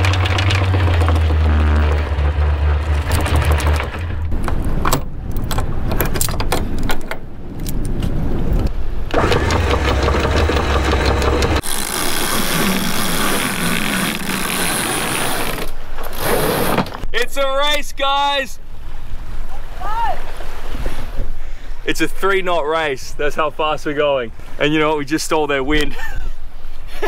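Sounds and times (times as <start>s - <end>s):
windlass motor humming: 0.0s - 16.3s
winch clicking rhythmically: 9.1s - 11.8s.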